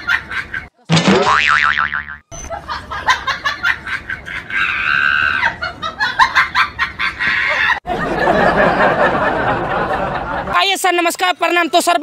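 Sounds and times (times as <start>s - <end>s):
high-pitched laughing cry: 4.2s - 7.8s.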